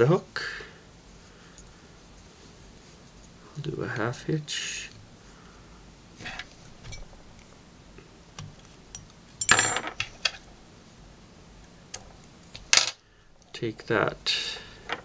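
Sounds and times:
metallic clatter of small tools: 8.9 - 10.4.

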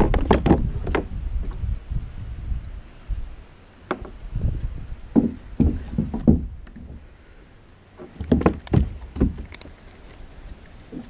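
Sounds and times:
knocks and thumps on a boat: 0.0 - 1.6, 5.1 - 7.0, 8.0 - 9.6.

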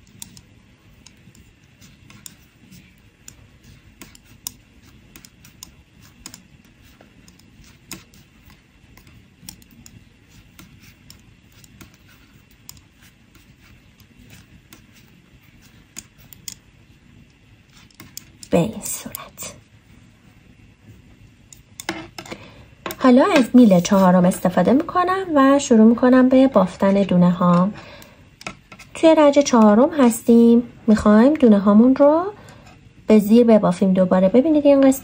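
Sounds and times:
knitting needles clicking: 0.0 - 10.0, 15.9 - 19.2.

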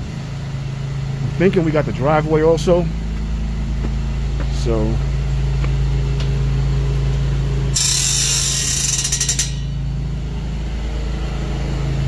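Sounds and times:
steady engine hum: 0.0 - 12.0
metal gate scraping open: 7.7 - 9.9.

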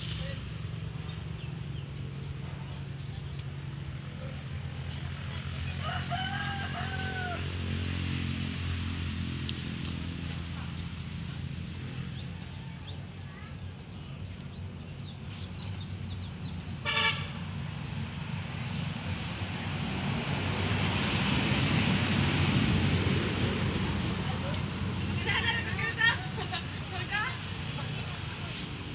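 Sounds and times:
traffic hum: 0.0 - 28.9
vehicle horn toot: 16.8 - 17.4.

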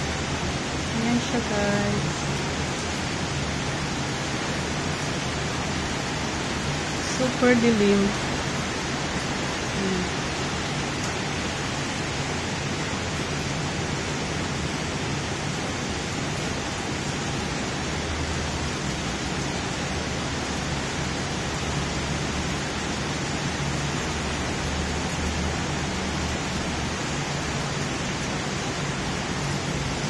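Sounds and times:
heavy rain falling: 0.0 - 30.0.

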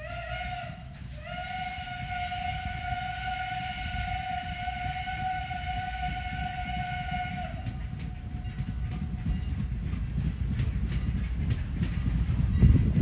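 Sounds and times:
faint train whistle: 0.0 - 9.5
steam train rumbling past: 0.0 - 13.0.

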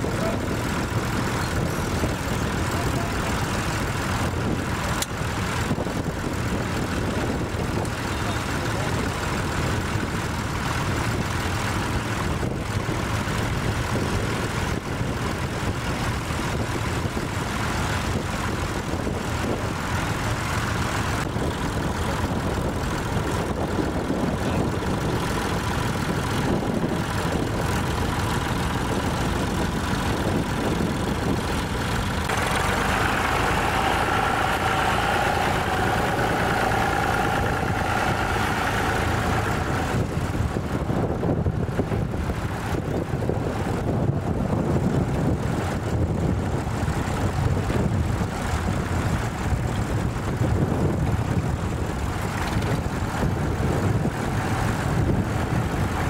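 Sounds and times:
tractor engines droning: 0.0 - 56.0
higher-pitched engine note: 32.3 - 40.1.

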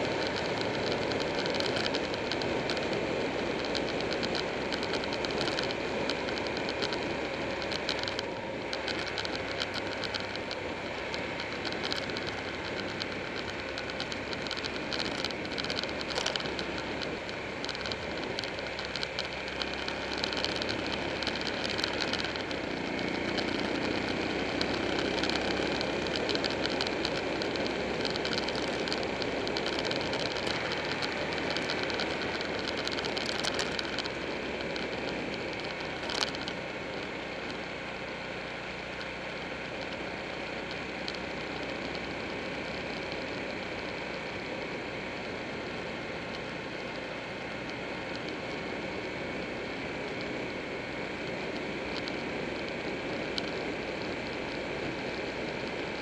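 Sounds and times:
motorcycle engine running: 0.0 - 56.0.

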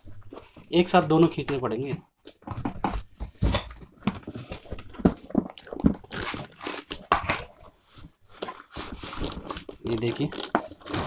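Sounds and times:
plastic bag crinkling: 4.1 - 7.7, 8.3 - 11.0.

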